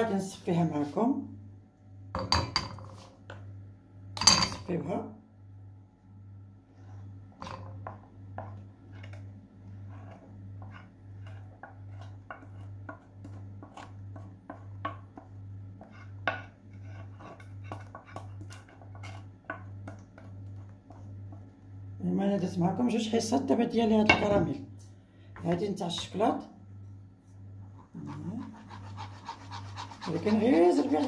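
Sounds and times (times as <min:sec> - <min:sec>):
spoon scraping sauce in sieve: 0:08.4 - 0:21.6.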